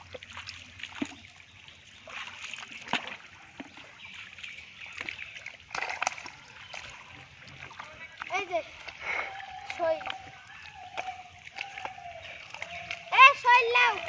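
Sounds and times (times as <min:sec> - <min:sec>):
mud splats: 0:00.0 - 0:14.0
squelching through wet mud: 0:00.0 - 0:14.0.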